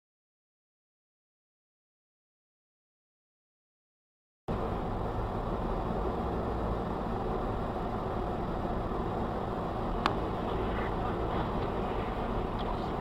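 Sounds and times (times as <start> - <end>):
car engine and road noise: 4.5 - 13.0.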